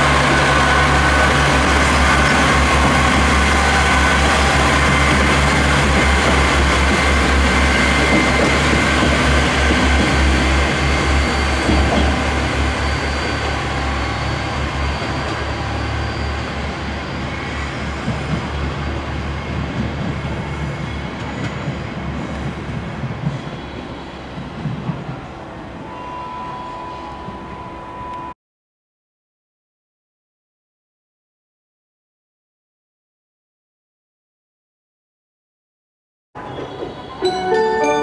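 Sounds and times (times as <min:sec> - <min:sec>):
train wheels rumbling on rails: 0:00.0 - 0:25.8, 0:36.4 - 0:37.3.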